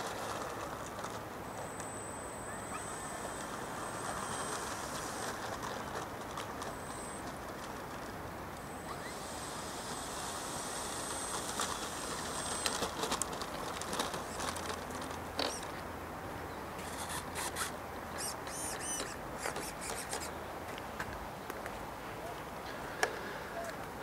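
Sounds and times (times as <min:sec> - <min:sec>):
high steady whine: 0:00.0 - 0:20.4
wind hiss: 0:08.1 - 0:13.2
high bird chirps: 0:18.2 - 0:20.0.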